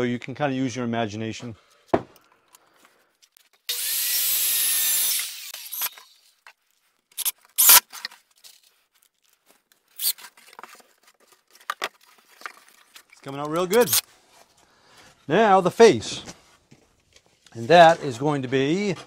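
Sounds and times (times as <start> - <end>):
wood knocks: 1.9 - 2.2
impact driver driving screw: 3.7 - 6.1, 7.2 - 8.0, 13.8 - 14.0.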